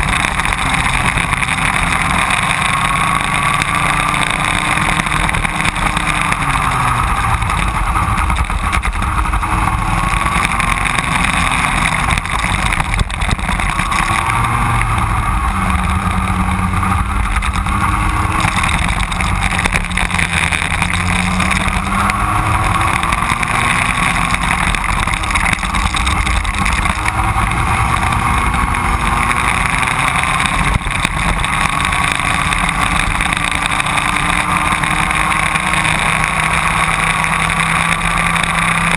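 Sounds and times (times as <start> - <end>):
racing kart engine revving: 0.0 - 38.9.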